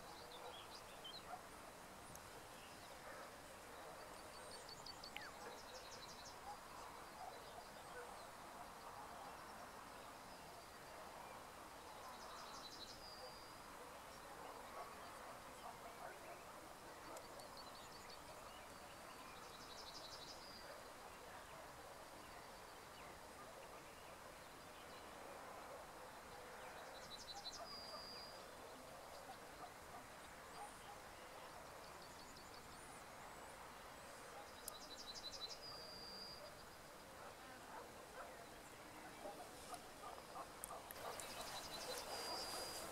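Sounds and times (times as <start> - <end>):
faint outdoor background noise: 0.0 - 42.9
small bird singing: 40.3 - 42.9.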